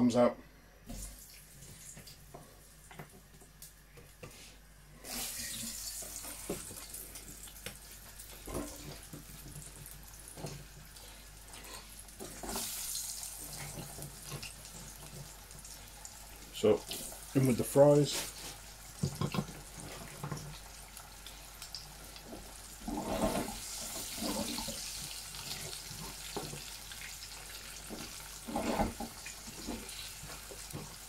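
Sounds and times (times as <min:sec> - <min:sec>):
potatoes sizzling in hot oil: 0:05.0 - 0:31.0.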